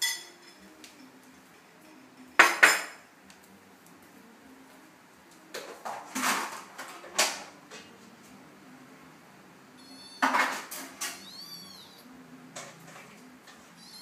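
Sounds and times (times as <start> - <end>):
kitten mewing: 9.8 - 10.4, 11.2 - 12.1.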